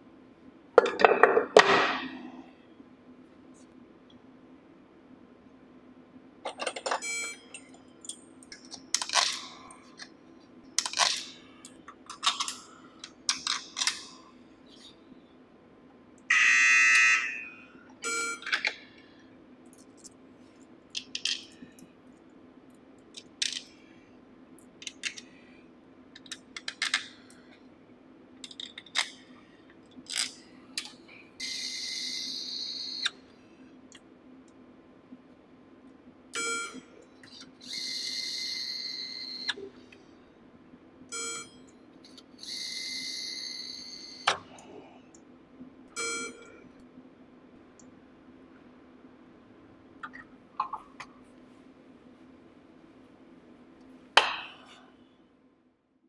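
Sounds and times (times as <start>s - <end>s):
electronic buzzer: 16.3s - 17.5s, 31.4s - 33.0s, 37.6s - 39.5s, 42.4s - 44.2s.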